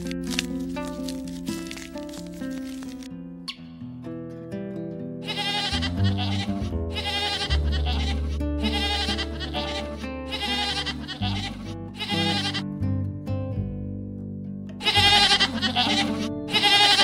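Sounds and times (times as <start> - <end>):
background music: 0.0 - 17.0
goats bleating: 5.2 - 12.6, 14.8 - 17.0.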